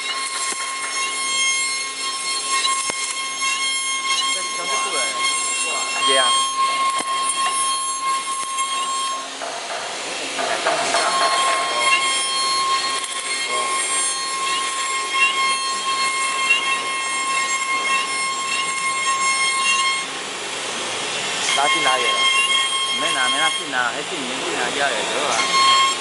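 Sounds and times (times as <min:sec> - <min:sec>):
router bit cutting wood: 0:00.0 - 0:26.0
router spindle whining: 0:00.0 - 0:26.0.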